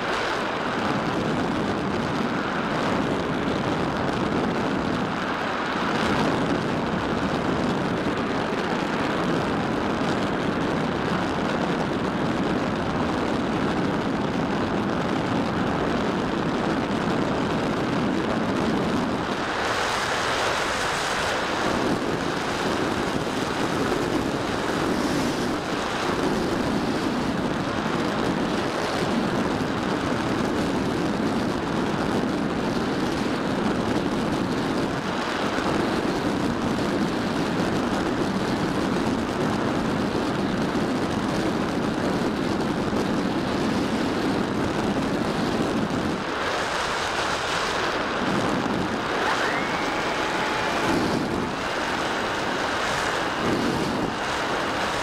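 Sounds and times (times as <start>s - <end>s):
wind rushing over camera: 0.0s - 55.0s
faint steady whine: 42.9s - 55.0s.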